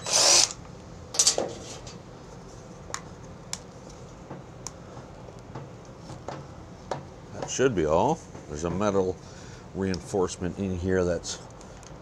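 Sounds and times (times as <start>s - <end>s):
tools clattering on workbench: 1.2s - 2.0s.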